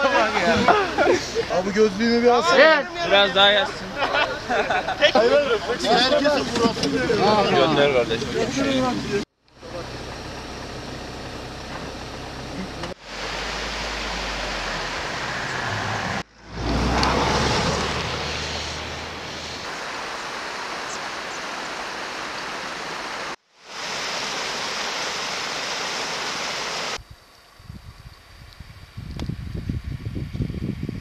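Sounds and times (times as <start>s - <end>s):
low engine rumble: 0.0s - 19.7s
steady rushing noise: 13.0s - 27.0s.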